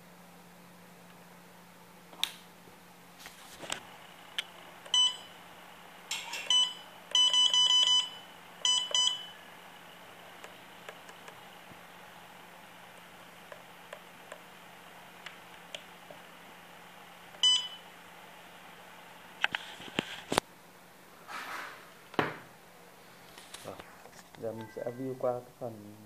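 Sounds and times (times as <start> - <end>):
touchscreen beeps: 17.4 - 17.8, 24.4 - 25.2.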